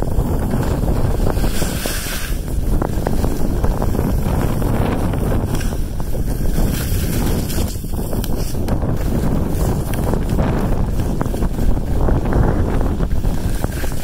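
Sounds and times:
sliding over snow: 0.0s - 14.0s
wind rushing on microphone: 0.0s - 14.0s.

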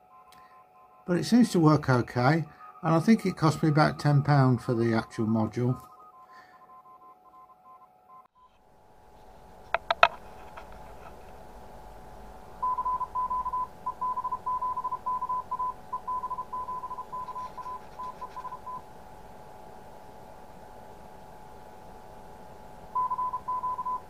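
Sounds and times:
morse code beeps: 0.0s - 8.3s, 12.6s - 18.8s, 23.0s - 24.0s.

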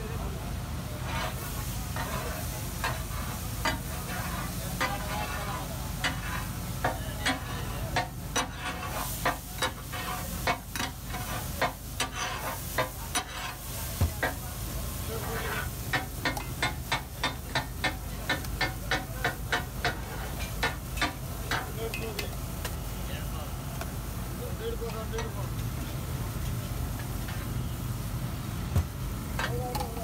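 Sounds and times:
frying sizzle: 0.0s - 30.0s
metal spatulas clacking on griddle: 3.6s - 4.2s, 6.0s - 13.6s, 15.4s - 22.4s.

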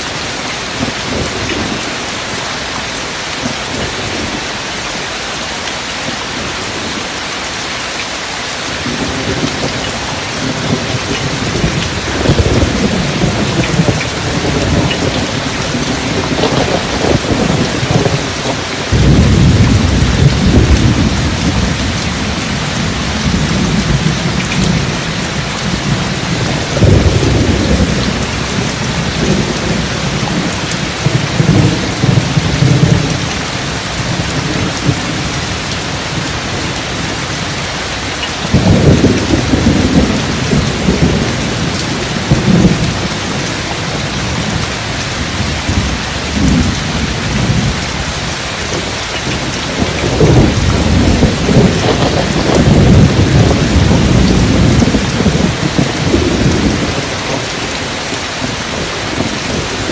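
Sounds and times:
heavy rain: 0.0s - 59.9s
thunder rolling: 8.8s - 37.2s, 38.4s - 57.8s.

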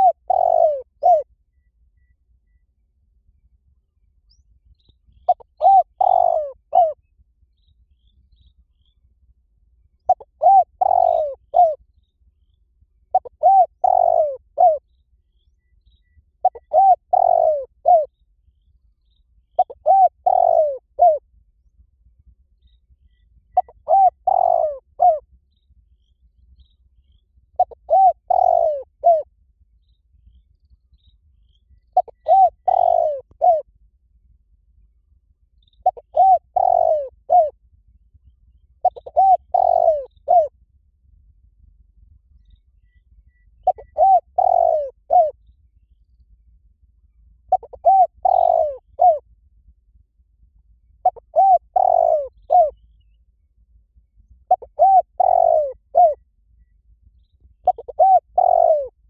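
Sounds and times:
dove cooing: 0.0s - 1.3s, 5.1s - 7.0s, 10.0s - 11.8s, 13.1s - 14.8s, 16.4s - 18.1s, 19.6s - 21.2s, 23.5s - 25.2s, 27.6s - 29.3s, 32.0s - 33.7s, 35.8s - 37.6s, 38.8s - 40.5s, 43.6s - 45.4s, 47.5s - 49.2s, 51.0s - 52.8s, 54.5s - 56.2s, 57.6s - 59.0s.

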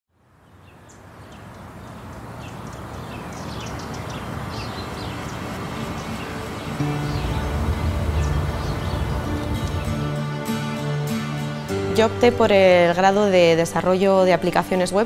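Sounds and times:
small birds chirping: 0.3s - 12.1s
steady background hiss: 0.4s - 11.7s.

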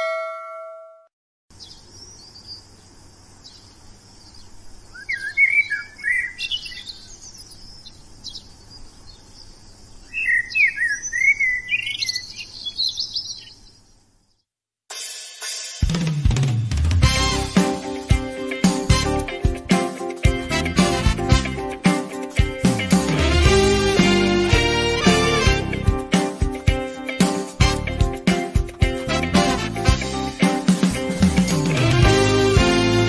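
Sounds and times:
ringing ding: 0.0s - 1.1s
birds chirping and singing: 3.4s - 14.0s
drum beat: 14.9s - 33.0s.

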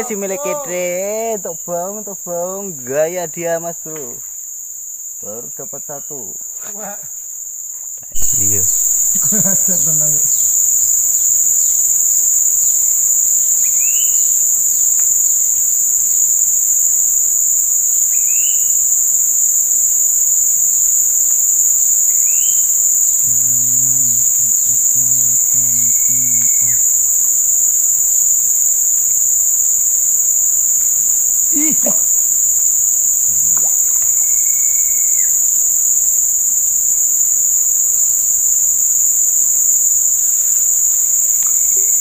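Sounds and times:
insect chorus drone: 0.0s - 42.0s
short rising calls: 8.1s - 10.5s.

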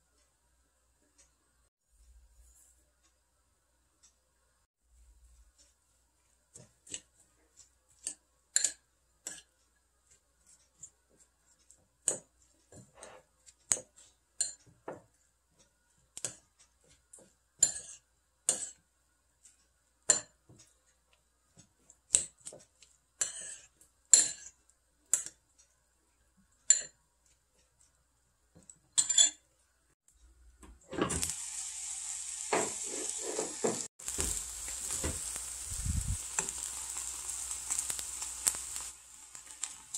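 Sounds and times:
wooden spatula stirring: 5.1s - 29.0s, 32.5s - 39.9s
metal spoon clinking on ceramic bowl: 17.6s - 18.8s, 23.2s - 25.3s, 26.6s - 27.0s, 29.0s - 29.4s
food sizzling in hot pot: 30.9s - 39.9s.

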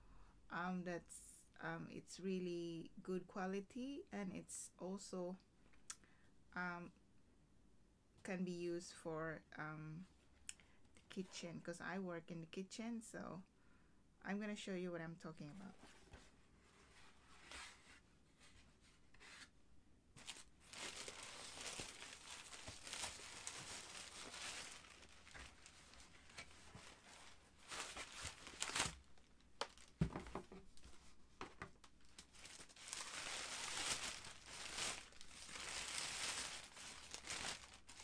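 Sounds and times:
tissue paper rustling and crinkling: 15.7s - 19.5s, 20.2s - 31.2s, 31.9s - 38.0s
cardboard box knocks and thump: 30.0s - 30.6s.

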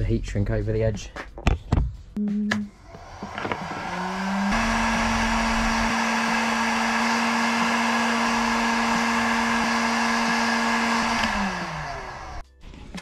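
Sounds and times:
fan winding down: 2.7s - 12.4s
heat gun humming and blowing air: 2.8s - 12.4s.

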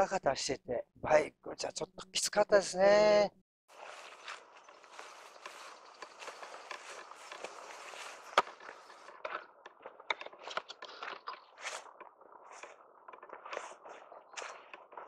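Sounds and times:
footsteps crunching on dirt: 3.7s - 15.0s.

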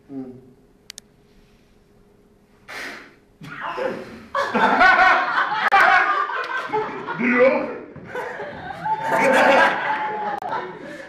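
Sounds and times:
people laughing: 4.3s - 11.0s.

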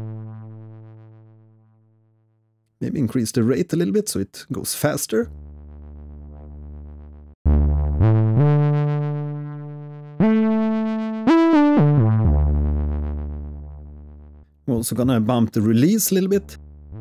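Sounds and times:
synth bass gliding notes: 0.0s - 1.7s, 5.3s - 14.5s, 15.7s - 17.0s.

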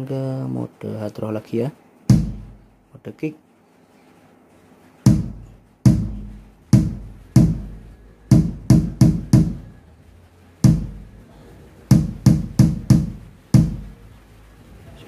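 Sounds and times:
electronic kick drum thuds: 2.1s - 2.9s, 5.0s - 9.9s, 10.6s - 14.3s.

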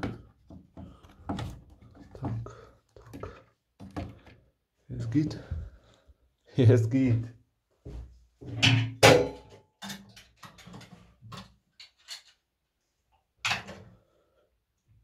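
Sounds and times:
hard objects clanking and knocking: 8.5s - 12.4s.

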